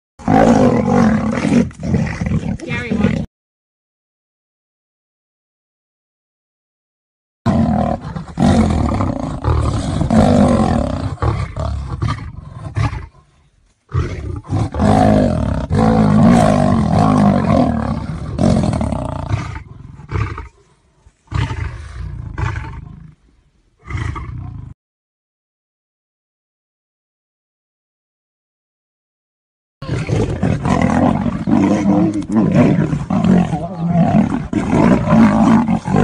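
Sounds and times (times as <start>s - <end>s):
lion and tiger roaring: 0.2s - 3.3s, 7.5s - 23.2s, 23.8s - 24.8s, 29.8s - 36.0s.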